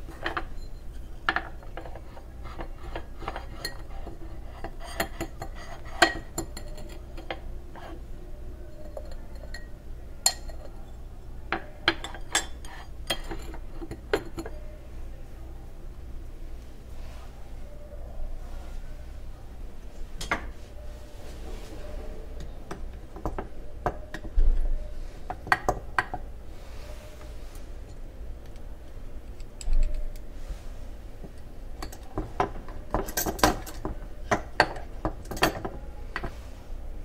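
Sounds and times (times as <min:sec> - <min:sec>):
metal scoop scraping glass jar: 0:01.8 - 0:07.0.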